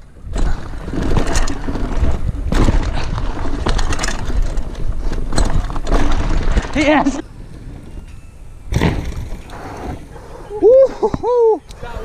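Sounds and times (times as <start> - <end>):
bike knocking and rattling: 0.0 - 10.0
wind rumbling over microphone: 0.0 - 12.0.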